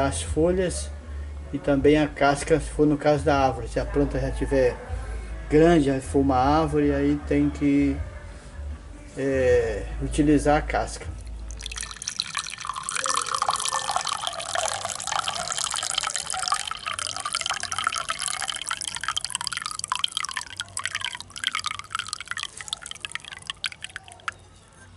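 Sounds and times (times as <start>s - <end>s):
liquid trickling and dripping: 11.0s - 24.9s
tea pouring into a glass: 11.2s - 24.5s.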